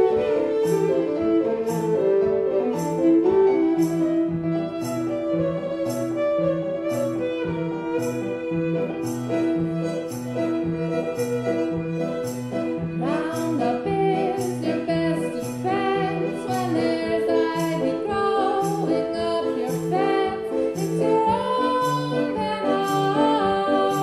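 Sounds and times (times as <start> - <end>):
low steady accompaniment: 0.0 - 24.0
violin playing: 0.0 - 24.0
woman singing: 13.0 - 24.0.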